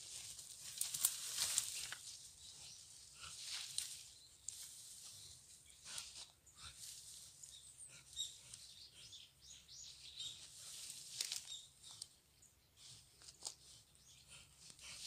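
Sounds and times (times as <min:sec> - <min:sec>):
crackling and rustling in dry leaves: 0:00.0 - 0:07.5, 0:10.4 - 0:12.1.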